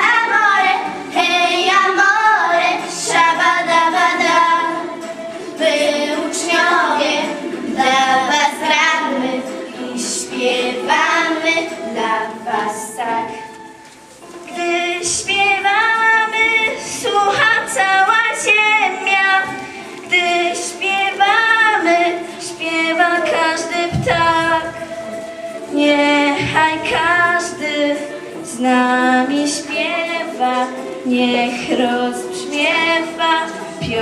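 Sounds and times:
girls singing into microphones: 0:00.0 - 0:34.0.

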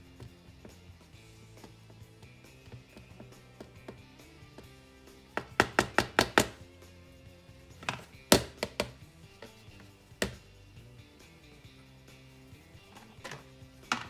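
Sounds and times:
soft background music: 0:00.0 - 0:14.0
plastic tub and spatula knocking: 0:02.6 - 0:04.7, 0:05.4 - 0:06.6, 0:07.8 - 0:10.5, 0:12.9 - 0:14.0.

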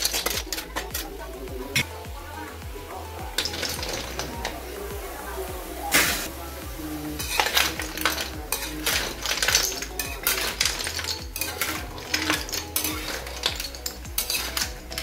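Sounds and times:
utensil stirring seashells in pan: 0:00.0 - 0:15.0.

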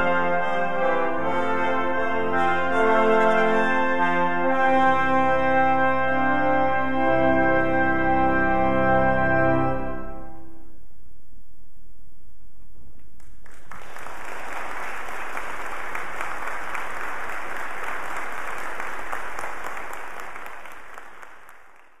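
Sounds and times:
audience applauding: 0:13.2 - 0:22.0.

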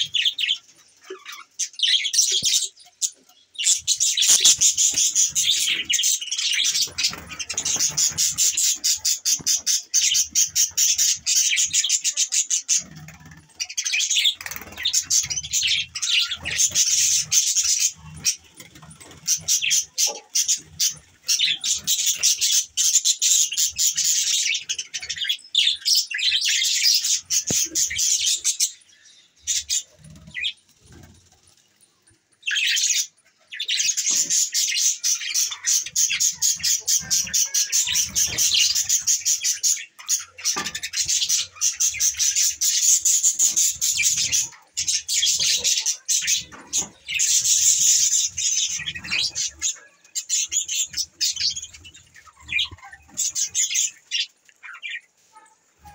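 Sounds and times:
budgerigars chattering: 0:00.0 - 0:31.0, 0:32.4 - 0:55.9.

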